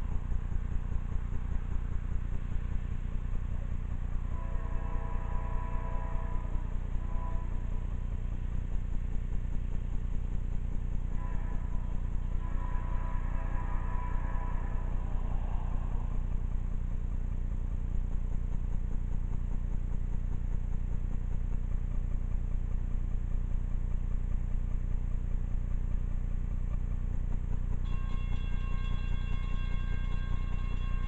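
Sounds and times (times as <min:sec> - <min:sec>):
locomotive horn chord: 0:00.0 - 0:18.3, 0:27.8 - 0:31.0
distant diesel locomotives rumbling: 0:00.0 - 0:18.6, 0:27.8 - 0:31.0.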